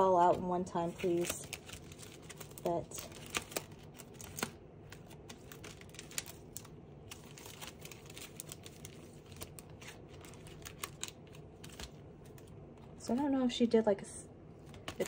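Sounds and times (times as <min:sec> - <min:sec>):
packaging crinkling and clicking: 0:00.8 - 0:12.8.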